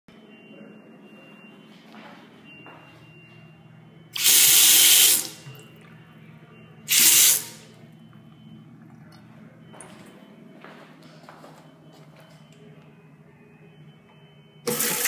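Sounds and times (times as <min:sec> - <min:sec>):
faucet water hissing into basin: 0:04.2 - 0:05.4, 0:06.9 - 0:07.6.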